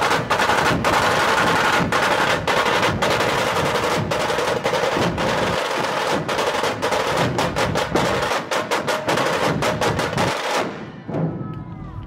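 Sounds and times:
rapid rattling drum strokes: 0.0 - 10.7
barrel drums beaten with sticks: 0.0 - 11.4.

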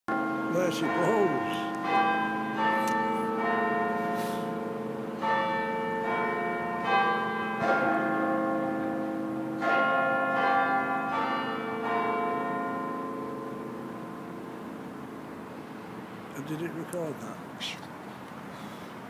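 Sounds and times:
clock tower bells chiming: 0.1 - 15.1.

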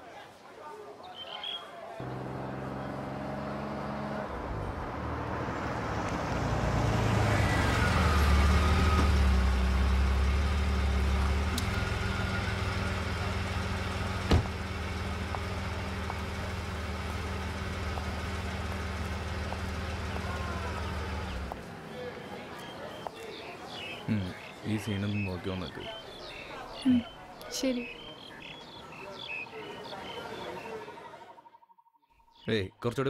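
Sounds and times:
car engine idling: 9.2 - 21.8
car door shutting: 14.2 - 14.6.

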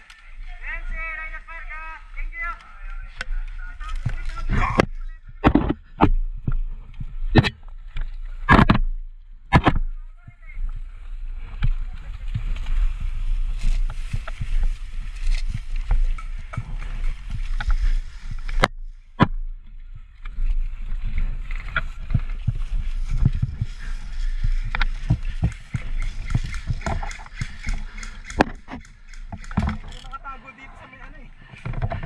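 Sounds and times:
rustling of grass: 0.0 - 32.0
sharp cracks: 24.7 - 30.2.

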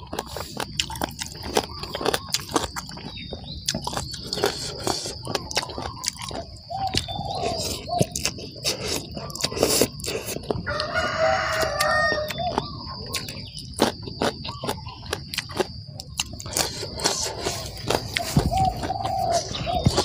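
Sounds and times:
wet chewing and mouth smacking: 0.0 - 20.0
rooster crowing: 10.6 - 13.0.

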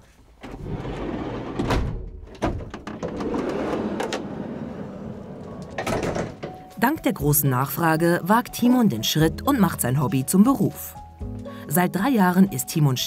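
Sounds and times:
sliding van door rolling and clunking: 0.4 - 6.7
knocks and handling noises: 5.3 - 6.8.

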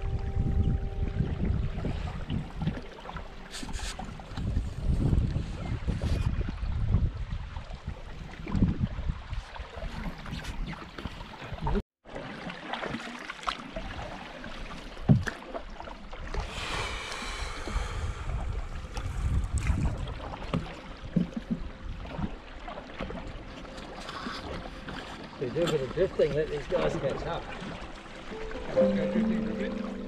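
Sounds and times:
wind on microphone: 0.0 - 11.8, 16.3 - 22.3
water lapping against hull: 0.0 - 30.0.

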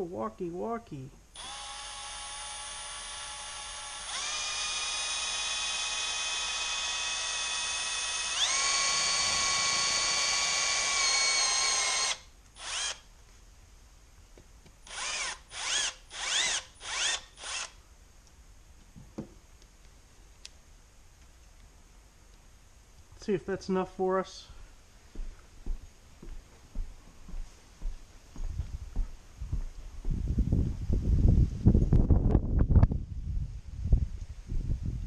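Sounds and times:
drill trigger bursts: 1.3 - 13.1, 14.8 - 17.8
power drill motor whine: 1.4 - 13.1, 14.8 - 17.8.

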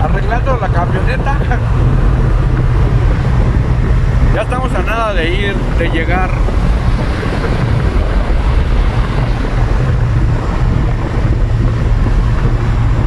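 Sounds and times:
vehicle road and engine rumble: 0.0 - 13.0.

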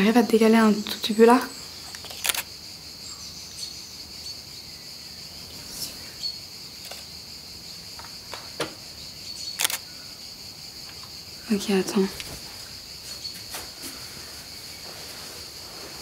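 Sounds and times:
high-pitched insect chorus: 0.0 - 16.0
camera shutter clicks: 1.9 - 2.5, 9.6 - 9.8.

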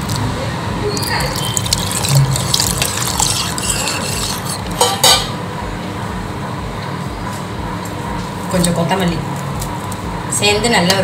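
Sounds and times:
water pouring: 1.0 - 4.6
metal ladle scraping a pot: 1.4 - 5.3.

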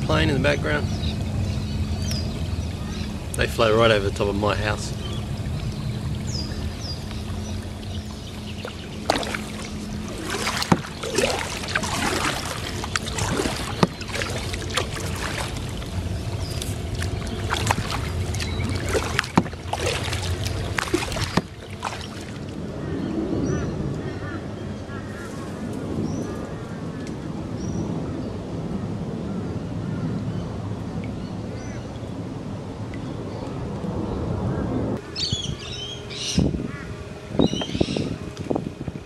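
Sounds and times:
water washing against hull: 0.0 - 23.6, 35.0 - 39.0.

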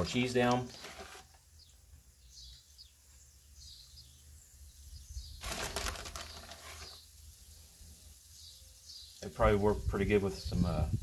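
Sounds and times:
plastic bag crinkling: 0.5 - 1.4, 5.4 - 7.0.

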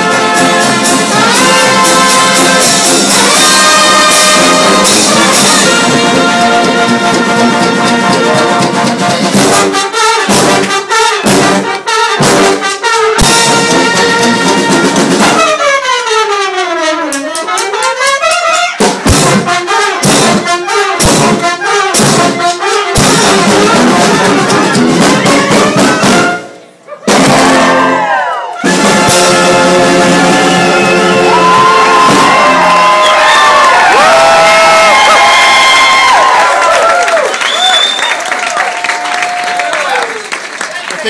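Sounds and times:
drum strokes: 0.0 - 15.6, 17.1 - 28.0, 28.6 - 33.4
brass band playing loudly: 0.0 - 40.1.

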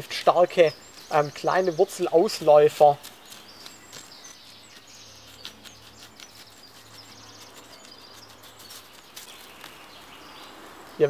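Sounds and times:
small birds chirping: 0.0 - 11.0
stick scratching forest soil: 0.0 - 11.0.

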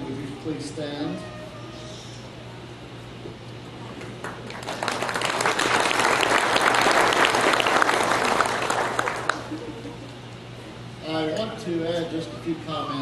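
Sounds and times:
faint steady hum: 0.0 - 13.0
audience applauding: 4.0 - 9.6.

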